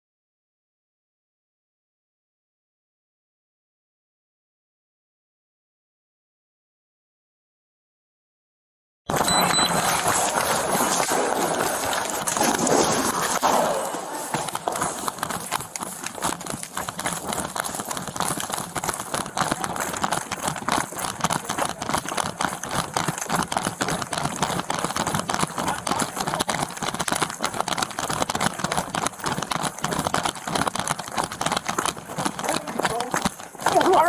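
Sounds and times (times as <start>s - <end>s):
running footsteps on hard floor: 9.1s - 34.0s.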